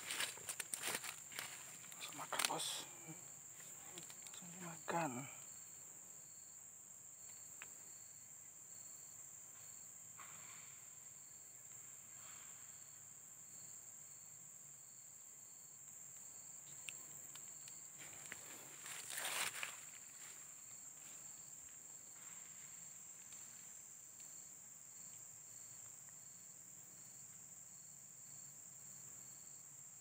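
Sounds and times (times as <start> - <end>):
insect chirping in pulses: 0.0 - 30.0
rustling noise: 18.0 - 20.4.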